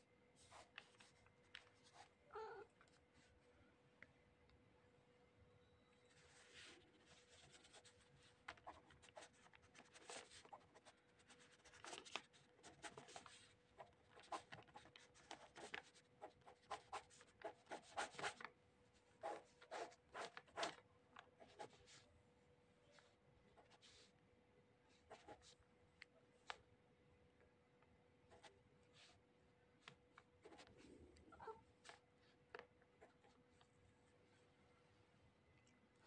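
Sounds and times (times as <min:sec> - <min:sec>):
faint steady hum: 0:00.0 - 0:36.0
pen scratching on paper: 0:06.3 - 0:18.5, 0:19.1 - 0:20.8, 0:21.4 - 0:22.0, 0:24.9 - 0:25.6.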